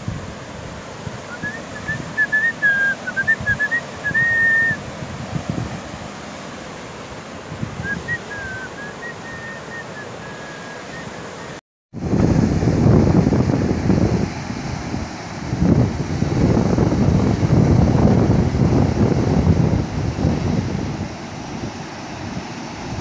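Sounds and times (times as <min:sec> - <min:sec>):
wind gusts on microphone: 0:00.0 - 0:23.0
person whistling a tune: 0:01.3 - 0:04.8, 0:07.8 - 0:11.2.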